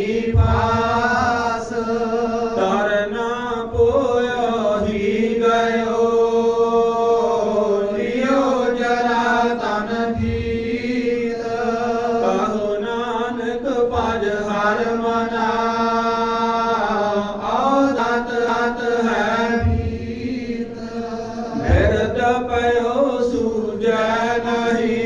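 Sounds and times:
person chanting slowly: 0.0 - 25.0
steady drone: 14.7 - 25.0.

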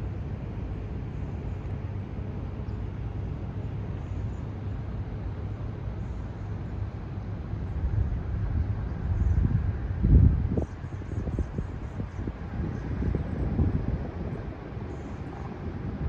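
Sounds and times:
distant traffic: 0.0 - 16.0
faint steady hum: 0.0 - 16.0.

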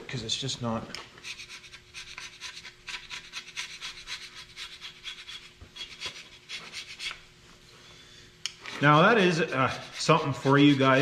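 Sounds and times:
hand scraper scraping metal: 1.2 - 7.2, 8.6 - 11.0.

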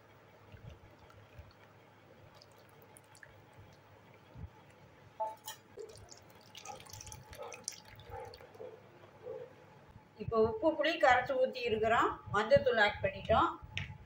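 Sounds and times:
water dripping: 0.5 - 8.6
wet squelching: 0.6 - 3.8, 5.8 - 8.6
small water splashes: 0.6 - 3.9, 5.5 - 8.6.

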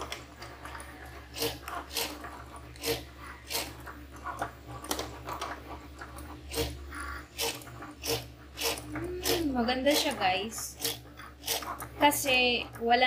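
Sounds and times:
cutting machine motor hum: 6.4 - 12.8.

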